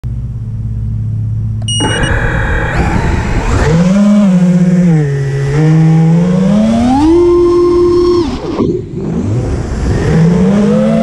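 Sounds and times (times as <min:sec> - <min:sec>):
brief high beep: 0:01.6 - 0:02.2
drone motors whining: 0:01.6 - 0:11.0.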